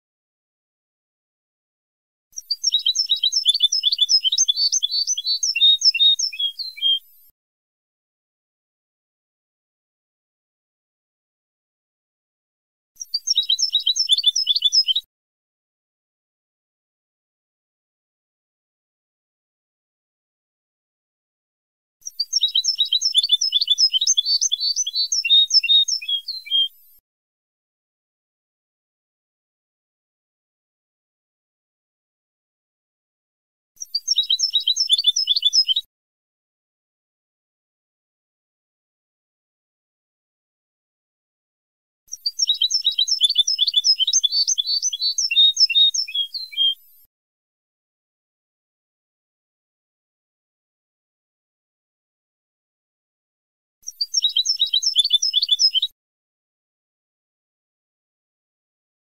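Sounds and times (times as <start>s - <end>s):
goldfinch twittering song: 2.4s - 7.2s, 13.0s - 15.0s, 22.0s - 26.8s, 33.8s - 35.9s, 42.1s - 46.9s, 53.9s - 55.9s.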